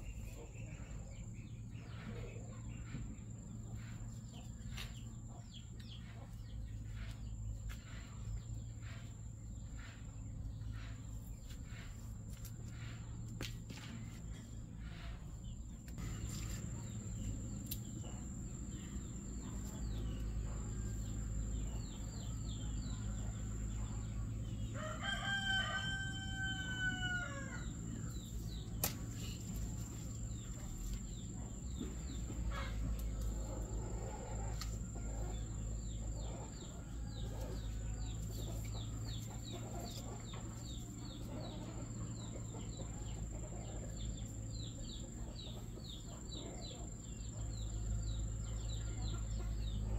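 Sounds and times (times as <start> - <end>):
rooster crowing: 24.7 - 27.8.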